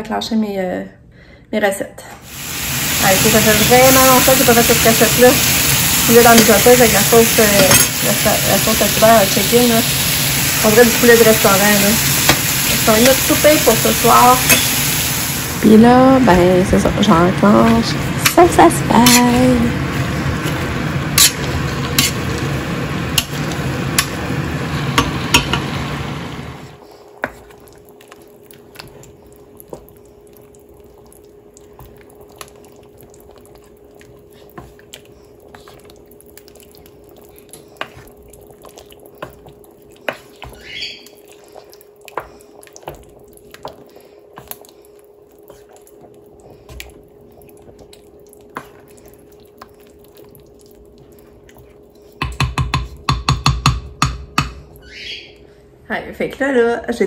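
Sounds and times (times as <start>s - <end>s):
faint steady hum: 0.0s - 57.0s
potato masher mashing meat in pot: 17.4s - 19.6s
wooden spoon stirring thick sauce: 26.9s - 53.2s
spoon tapping metal pot: 52.2s - 54.6s.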